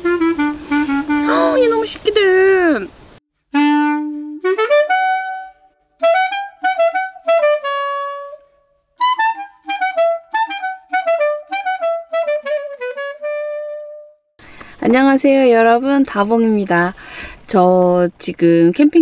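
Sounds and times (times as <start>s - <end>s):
solo woodwind melody: 0.0s - 2.1s, 3.5s - 14.3s.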